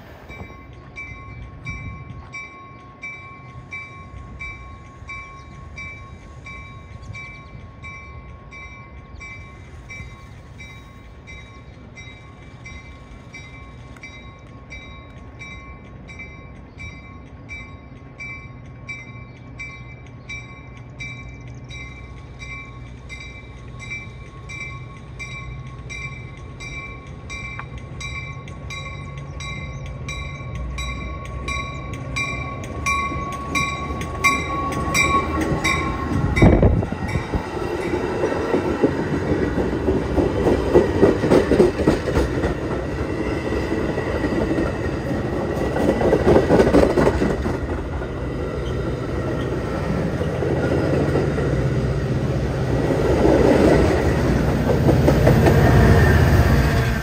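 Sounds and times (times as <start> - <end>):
diesel locomotive passing: 0.0 - 57.0
warning bell ringing: 0.4 - 38.3
train wheels clattering over rails: 20.8 - 57.0.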